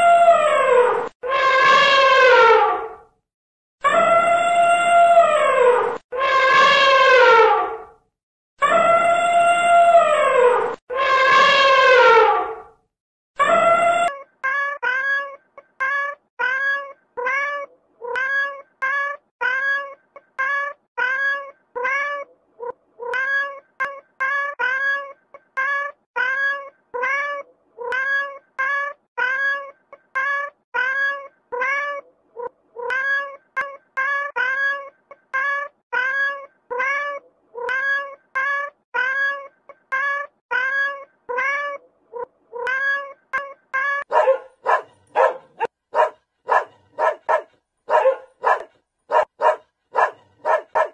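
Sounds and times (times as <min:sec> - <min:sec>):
cat meowing: 0:13.4 - 0:45.7
puppy yapping: 0:44.0 - 0:50.9.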